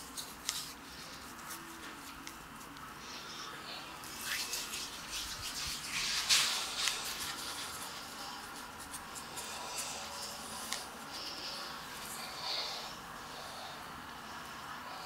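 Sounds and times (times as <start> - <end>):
fingertips rubbing beard stubble: 4.1 - 11.4.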